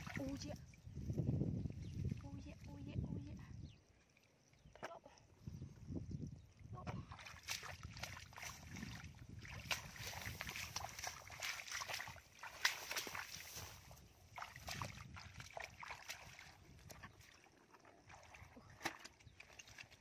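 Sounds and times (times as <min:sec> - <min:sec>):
small water splashes: 0:00.0 - 0:02.9, 0:06.5 - 0:20.0
feet squelching in mud: 0:07.0 - 0:20.0.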